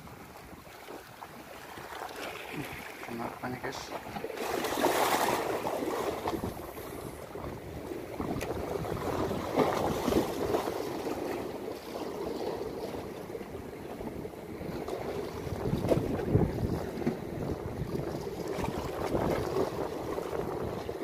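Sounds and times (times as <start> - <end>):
waves splashing against concrete: 0.9 - 13.3.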